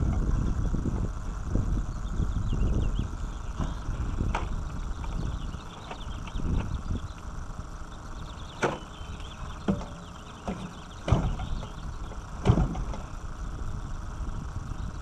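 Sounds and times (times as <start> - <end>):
wind rumble on microphone: 0.0 - 15.0
propeller flipped by hand thumps: 9.6 - 11.8, 12.4 - 13.1.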